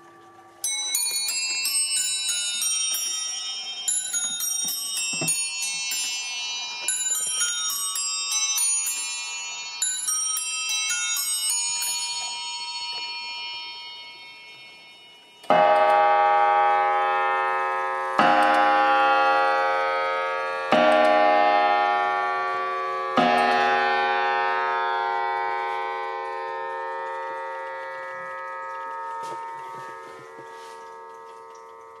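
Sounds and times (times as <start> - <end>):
clock bell chime: 0.0 - 32.0
clock striking: 14.4 - 31.0.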